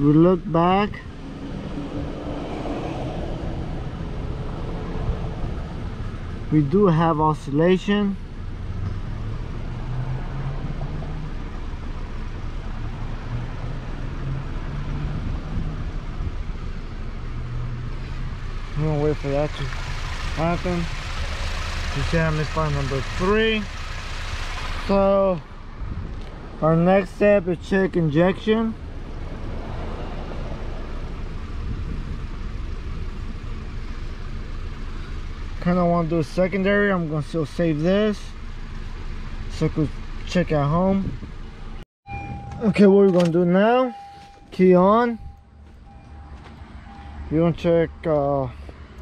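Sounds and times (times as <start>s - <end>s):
car engine idling with misfire: 18.0s - 25.6s.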